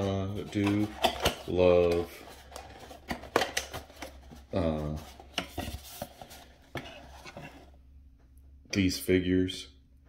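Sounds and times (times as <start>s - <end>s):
cardboard box handled: 0.5s - 7.8s.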